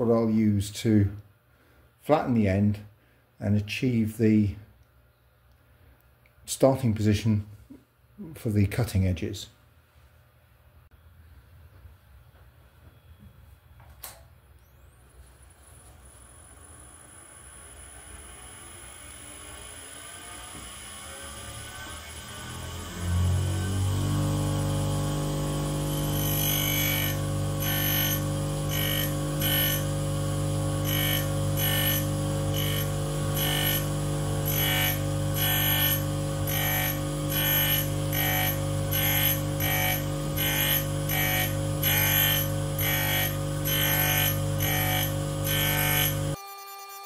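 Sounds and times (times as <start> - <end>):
grinder motor hum: 16.2 - 46.6
high grinding hiss: 24.6 - 47.0.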